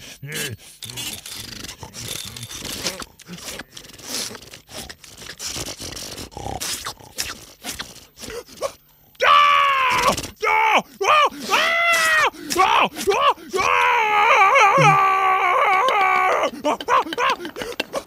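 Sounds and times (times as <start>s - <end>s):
cartoon scraping and rasping: 0.3s - 8.7s, 14.8s - 15.0s.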